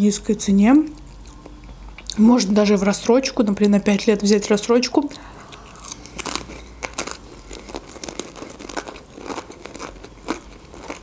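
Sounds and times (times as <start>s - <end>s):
chewing crunchy food: 0.9s - 2.3s, 5.1s - 11.0s.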